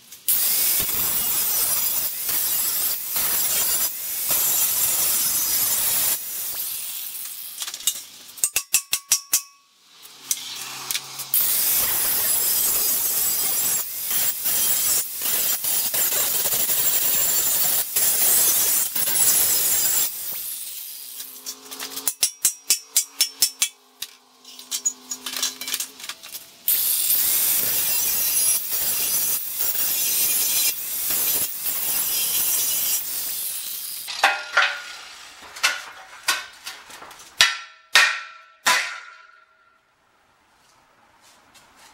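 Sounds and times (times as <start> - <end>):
angle grinder grinding steel: 0.3 - 8.1, 10.0 - 36.6
hammer clanging on steel: 8.4 - 9.7, 21.5 - 25.8, 34.1 - 39.7.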